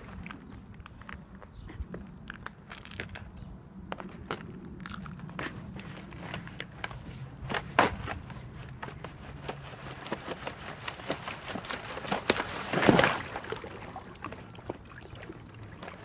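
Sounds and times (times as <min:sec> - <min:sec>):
ice crunching as it gives way: 0:04.0 - 0:14.8.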